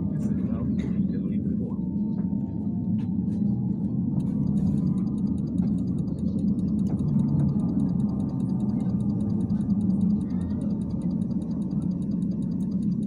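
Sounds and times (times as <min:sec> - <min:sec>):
faint gliding whine: 0:00.0 - 0:13.0
trolleybus interior rumble: 0:00.0 - 0:13.0
fast even ticking: 0:04.2 - 0:13.0.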